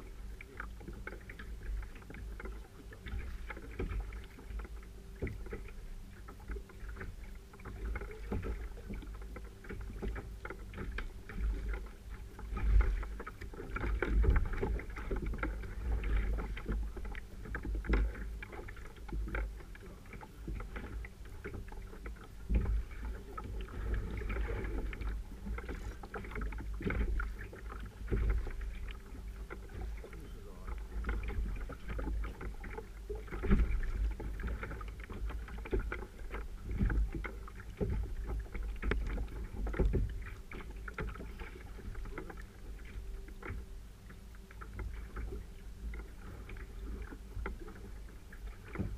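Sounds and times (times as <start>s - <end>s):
water sloshing against hull: 0.0s - 48.9s.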